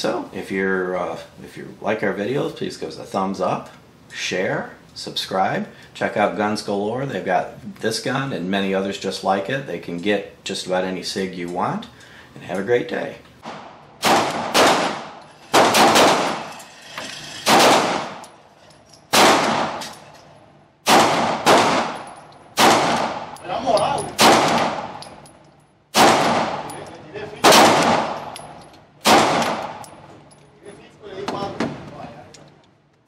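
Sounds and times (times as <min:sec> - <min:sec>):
pistol shots echoing indoors: 0:13.4 - 0:16.5, 0:17.4 - 0:18.3, 0:19.1 - 0:20.1, 0:20.8 - 0:23.4, 0:24.1 - 0:25.1, 0:25.9 - 0:26.8, 0:27.4 - 0:30.0.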